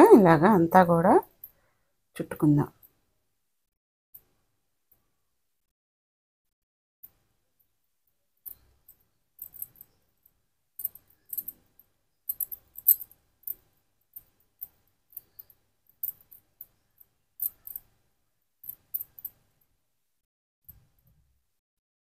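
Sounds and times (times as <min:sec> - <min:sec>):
bangles clinking: 0:08.4 - 0:18.0, 0:18.6 - 0:19.6.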